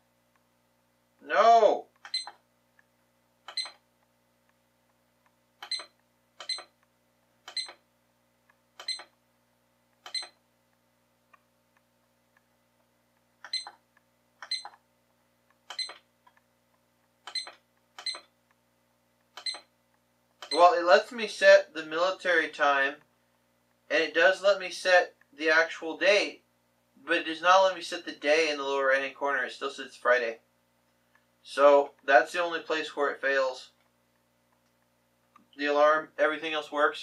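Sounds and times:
alarm clock button beeps: 0:02.0 - 0:02.4, 0:03.5 - 0:03.8, 0:05.6 - 0:06.7, 0:07.5 - 0:07.8, 0:08.8 - 0:09.1, 0:10.1 - 0:10.4, 0:13.4 - 0:13.8, 0:14.4 - 0:14.8, 0:15.7 - 0:16.0, 0:17.3 - 0:18.3, 0:19.4 - 0:19.7.

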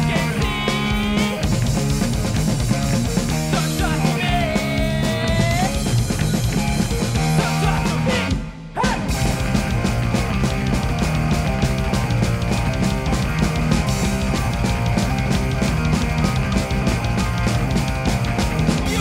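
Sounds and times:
person singing: 0:00.0 - 0:01.4, 0:03.5 - 0:05.9, 0:07.2 - 0:09.1, 0:18.8 - 0:19.0
punk band playing: 0:00.0 - 0:19.0.

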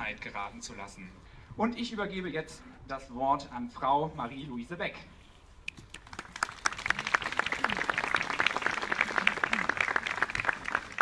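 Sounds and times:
crowd applauding: 0:06.0 - 0:11.0.

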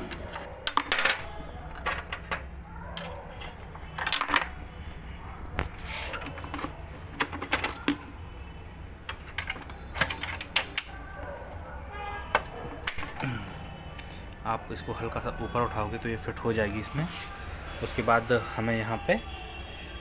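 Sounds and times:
plastic and metal parts clicking: 0:06.1 - 0:11.0.

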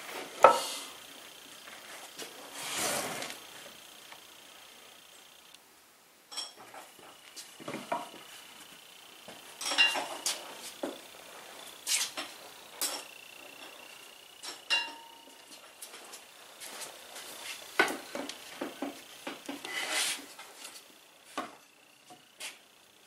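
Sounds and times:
metallic clinks of tools: 0:06.3 - 0:06.7, 0:09.6 - 0:10.4, 0:11.6 - 0:15.5.

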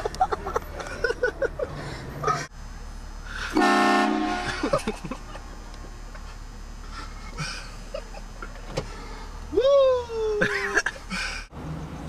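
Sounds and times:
train horn blast: 0:03.5 - 0:04.6.

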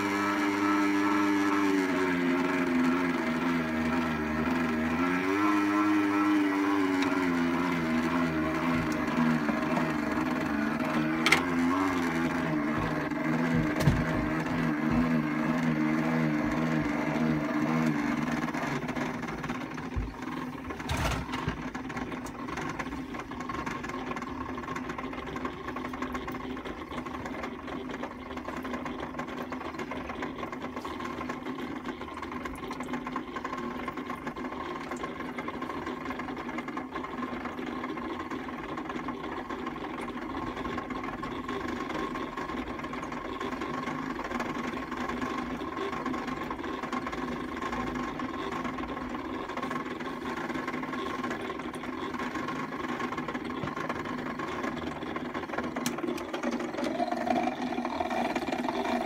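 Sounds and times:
toy washing machine motor whirring: 0:00.0 - 0:59.0.

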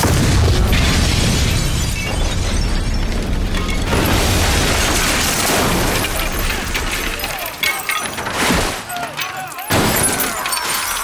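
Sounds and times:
explosion rumble: 0:00.0 - 0:07.2
debris clattering down: 0:00.0 - 0:11.0
glass shattering: 0:00.0 - 0:11.0.

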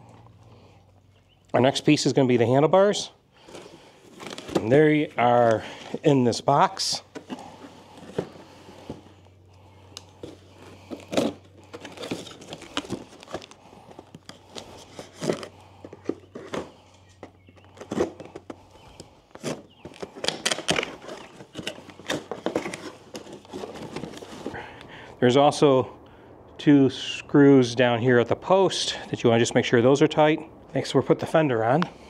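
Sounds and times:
cardboard and plastic rustling: 0:03.4 - 0:24.9.

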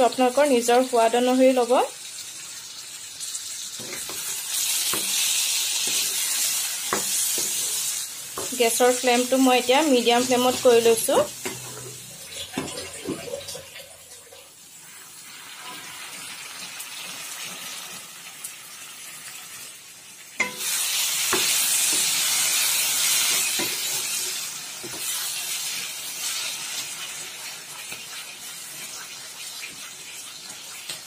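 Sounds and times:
food sizzling in a pan: 0:00.0 - 0:31.0.

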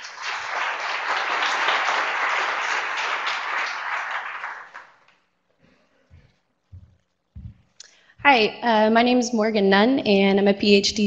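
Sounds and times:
audience applauding: 0:00.0 - 0:05.2.

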